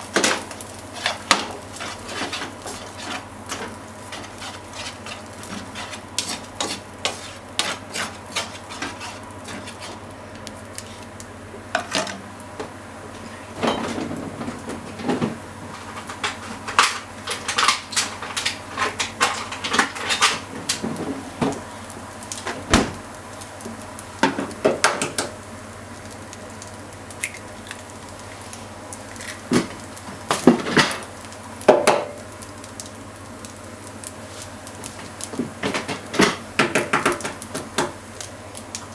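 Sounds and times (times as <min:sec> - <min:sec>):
utensil scraping a frying pan: 0:00.2 - 0:10.1.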